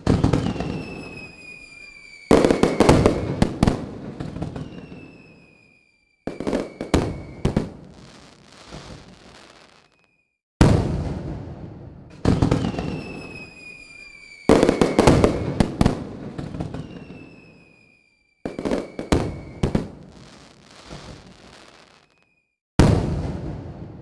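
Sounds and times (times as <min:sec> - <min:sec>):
falling firework whistles: 0:00.0 - 0:10.4, 0:12.3 - 0:22.6
fireworks bangs and crackle: 0:00.0 - 0:24.0.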